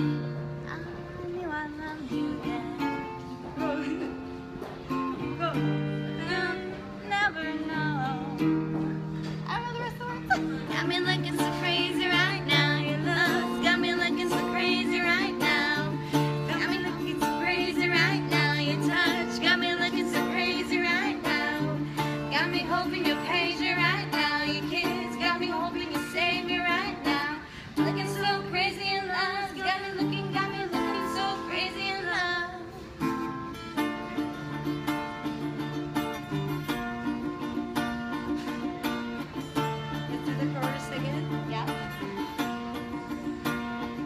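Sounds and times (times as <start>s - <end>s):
acoustic guitar: 0.0s - 44.0s
person singing with vibrato: 10.2s - 33.0s.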